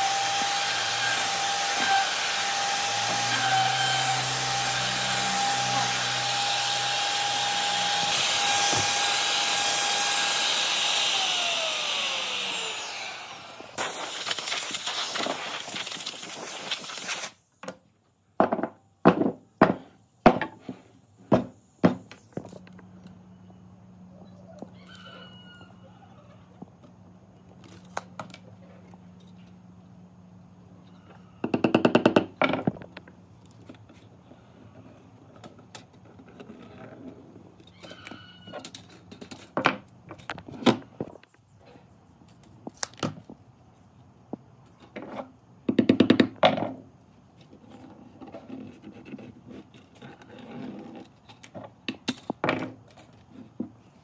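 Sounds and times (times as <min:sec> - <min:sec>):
burst of rapid strokes: 0:13.7 - 0:17.4.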